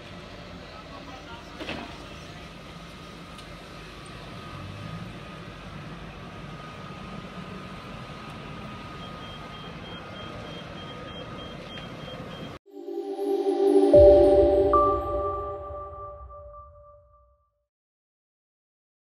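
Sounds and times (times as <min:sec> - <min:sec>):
vehicle engines rumbling: 0:00.0 - 0:12.4.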